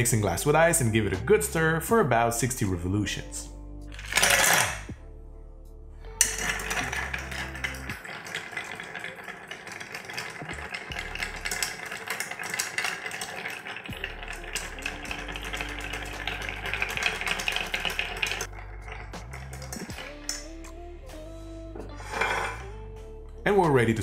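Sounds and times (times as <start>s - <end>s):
background music: 0.0s - 24.0s
ice cubes clinking in glass: 4.0s - 4.9s, 6.2s - 20.6s, 22.0s - 22.6s.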